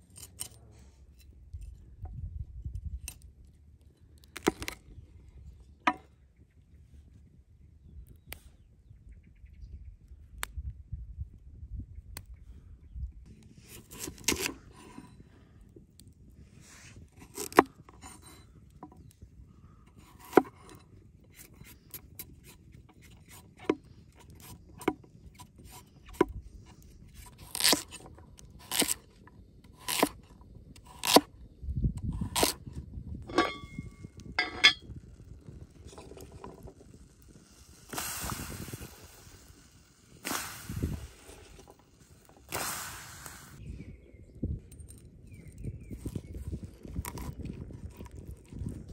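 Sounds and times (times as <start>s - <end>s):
brief metallic ring: 33.3s - 34.8s
hiss and sizzle from hot pot: 35.0s - 43.6s.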